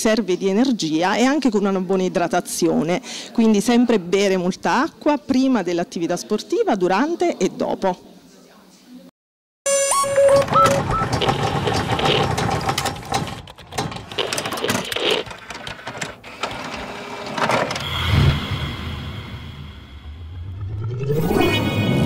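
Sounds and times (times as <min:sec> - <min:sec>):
rattling clicking clatter: 0:10.4 - 0:16.2
rising blips: 0:17.8 - 0:22.0.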